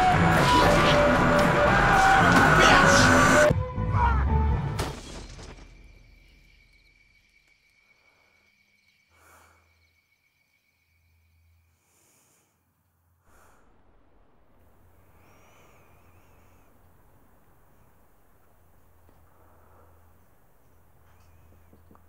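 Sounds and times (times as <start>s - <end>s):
crash: 0.0s - 3.5s, 4.7s - 7.6s
soft bird chirps: 5.6s - 12.3s, 15.0s - 22.0s
faint breaths: 7.8s - 10.0s, 11.6s - 22.0s.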